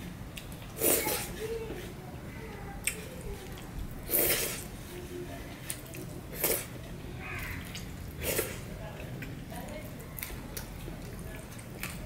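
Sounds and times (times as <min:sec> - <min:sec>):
wet chewing and mouth smacking: 0:02.7 - 0:04.8, 0:05.5 - 0:12.0.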